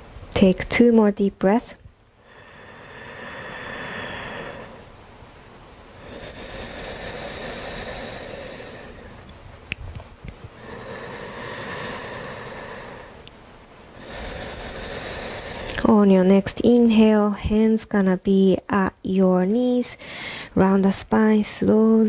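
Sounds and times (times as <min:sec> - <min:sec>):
person breathing deeply: 0:02.2 - 0:04.9, 0:05.9 - 0:09.3, 0:10.5 - 0:13.2, 0:13.9 - 0:15.9, 0:20.0 - 0:20.6.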